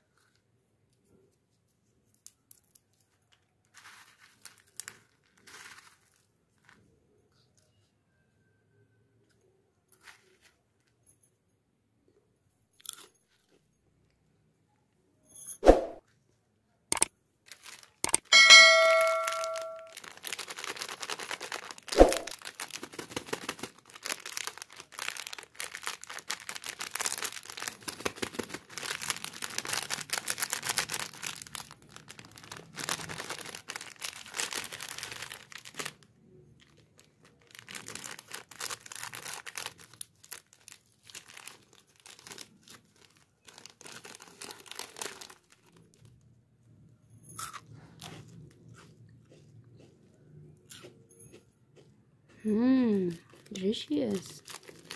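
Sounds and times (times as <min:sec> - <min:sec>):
plastic wrapper crinkling and tearing: 0:02.0 - 0:06.8, 0:17.4 - 0:18.2, 0:19.4 - 0:46.2, 0:53.0 - 0:54.9
short bell-like chime: 0:18.3 - 0:20.0.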